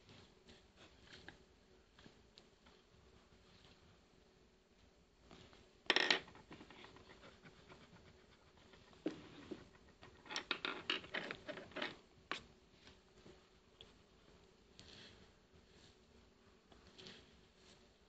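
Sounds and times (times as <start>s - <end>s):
pencil clicks and knocks: 9.0s - 12.5s.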